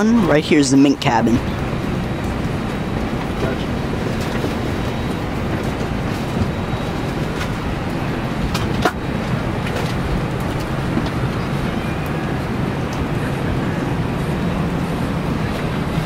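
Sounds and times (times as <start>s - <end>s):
aircraft cabin ventilation hum: 0.0s - 16.0s.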